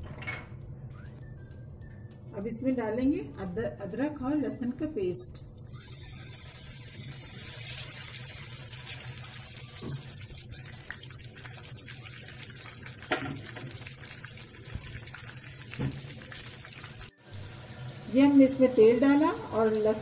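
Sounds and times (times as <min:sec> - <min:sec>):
paste sizzling in hot oil: 0:05.6 - 0:20.0.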